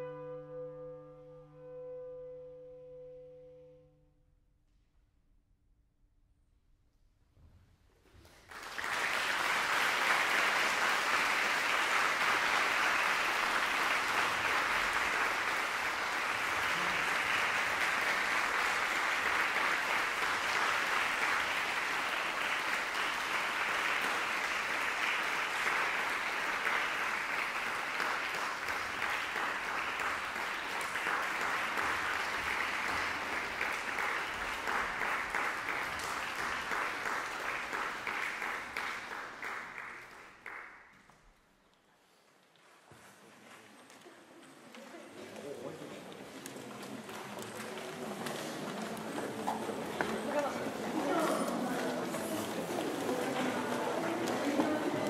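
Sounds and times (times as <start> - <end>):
audience applauding: 8.4 - 41.2, 45.3 - 55.0.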